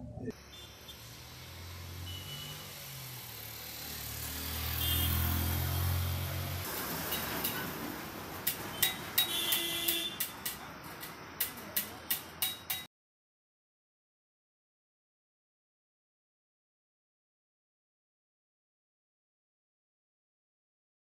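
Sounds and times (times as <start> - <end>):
vehicle engine humming: 0.0 - 12.4.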